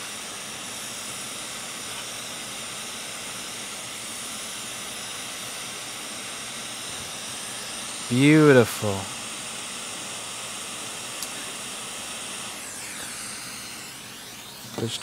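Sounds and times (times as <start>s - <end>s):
hot air station hissing: 0.0s - 15.0s.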